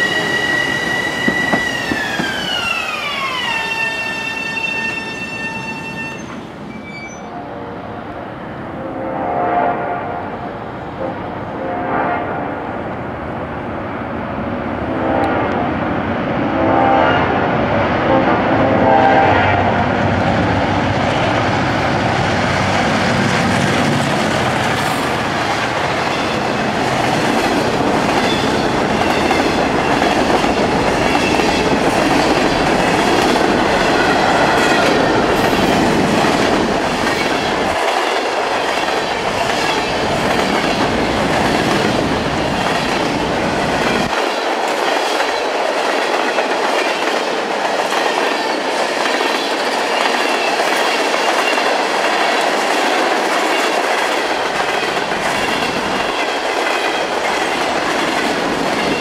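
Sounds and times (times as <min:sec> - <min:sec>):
wheels clacking over rail joints: 0:00.1 - 0:03.4
locomotive horn blasts: 0:08.7 - 0:10.4, 0:11.0 - 0:12.6, 0:14.9 - 0:15.6, 0:16.5 - 0:17.5, 0:18.1 - 0:19.8.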